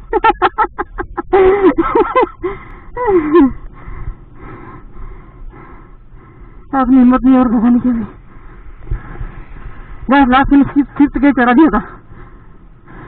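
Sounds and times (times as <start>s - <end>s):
man panting: 2.4s - 6.7s, 11.9s - 13.0s.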